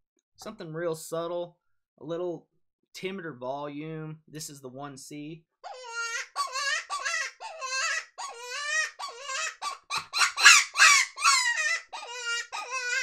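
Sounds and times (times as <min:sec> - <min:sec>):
predator call high-pitched cries: 0:05.7 - 0:13.0.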